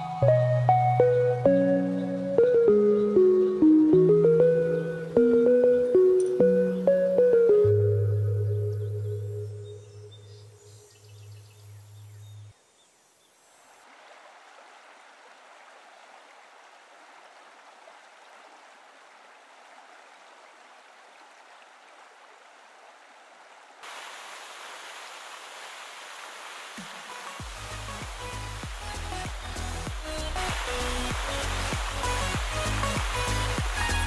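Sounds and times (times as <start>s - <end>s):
background music: 0.0s - 10.4s, 27.2s - 34.0s
waterfall rushing into a pool: 23.8s - 34.0s.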